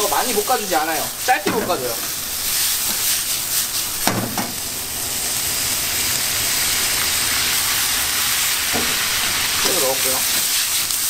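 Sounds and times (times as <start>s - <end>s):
food sizzling in a wok: 0.0s - 11.0s.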